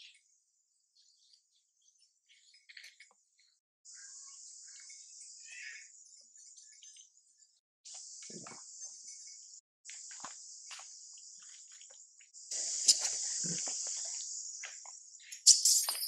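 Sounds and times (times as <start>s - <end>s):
insect chorus drone: 3.9s - 16.0s.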